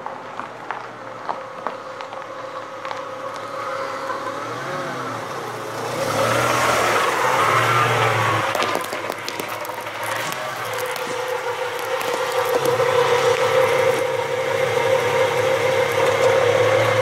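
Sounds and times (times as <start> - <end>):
car engine running at low speed: 0.2 - 17.0.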